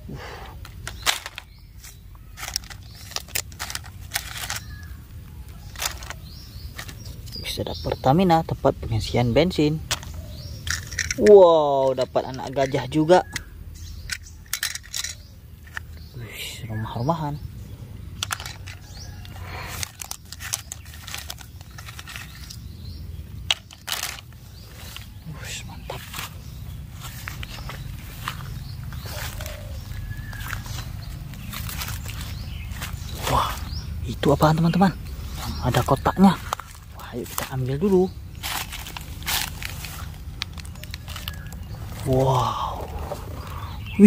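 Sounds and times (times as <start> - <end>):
rustling grass and dry leaves: 0.0 - 44.0
plastic toy pieces clicking: 0.7 - 1.5, 2.4 - 4.8, 5.7 - 6.2, 9.9 - 11.4, 14.1 - 15.9, 18.2 - 22.6, 23.5 - 24.3
plastic toy track pieces clicking: 2.4 - 4.7, 19.8 - 22.5, 23.5 - 24.2.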